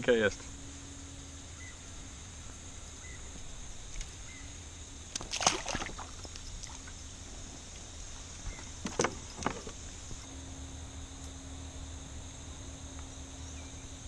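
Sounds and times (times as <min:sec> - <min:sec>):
fish splashing in water: 0:05.1 - 0:10.0.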